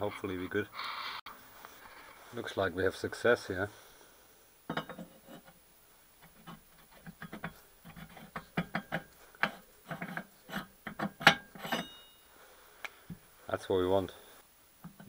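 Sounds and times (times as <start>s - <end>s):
metal clicks and knocks: 6.2s - 11.9s.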